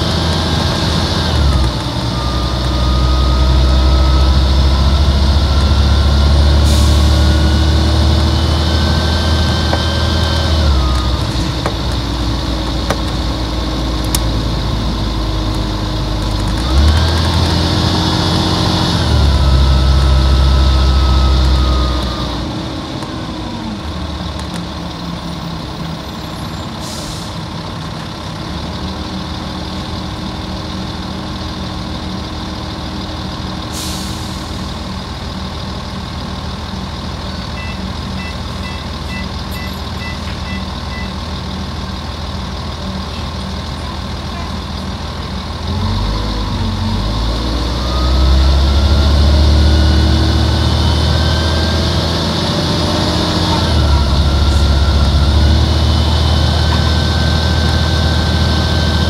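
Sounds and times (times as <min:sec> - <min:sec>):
engine whine rising and falling: 0:00.0 - 0:26.0, 0:45.4 - 0:59.0
diesel bus engine under load: 0:00.0 - 0:59.0.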